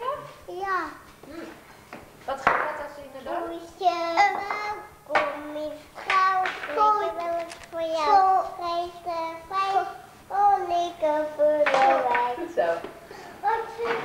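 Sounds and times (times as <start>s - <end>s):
child singing: 3.5s - 12.4s, 13.4s - 14.0s.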